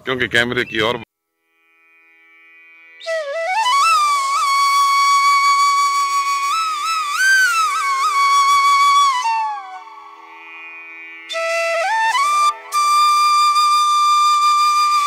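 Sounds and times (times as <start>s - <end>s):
slow flute-like melody: 2.9s - 15.0s.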